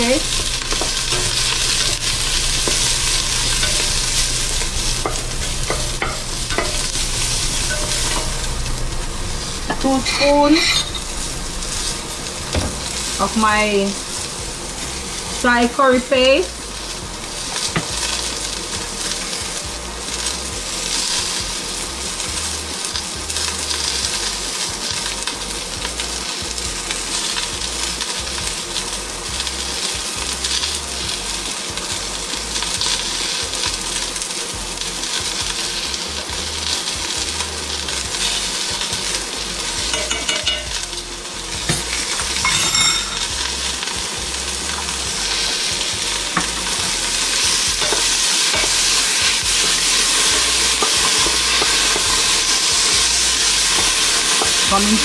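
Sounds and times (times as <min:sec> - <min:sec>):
onions sizzling in a pot: 0:00.0 - 0:55.0
metal spoon clinks: 0:39.9 - 0:40.7, 0:42.4 - 0:43.3.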